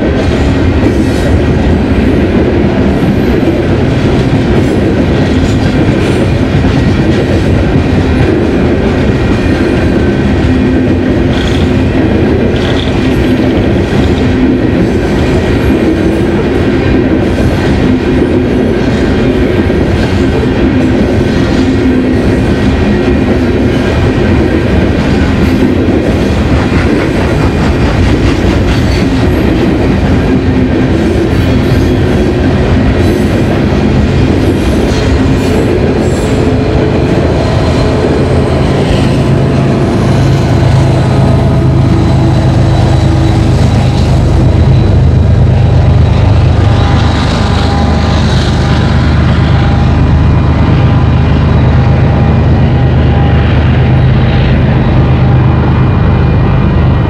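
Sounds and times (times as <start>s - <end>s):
train wheels clacking over rail joints: 0.0s - 48.8s
diesel locomotive engine drone: 0.0s - 57.0s
crossing warning bell ringing: 35.1s - 57.0s.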